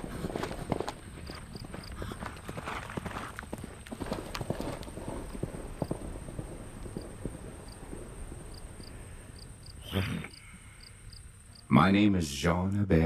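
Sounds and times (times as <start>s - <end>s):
horse hooves thudding on grass: 0.0s - 8.9s.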